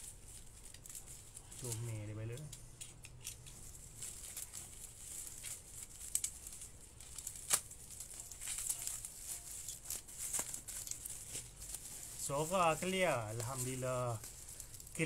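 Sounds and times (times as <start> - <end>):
bubble wrap rustling and crinkling: 0.0 - 15.0
sharp clicks and snaps: 2.3 - 3.6.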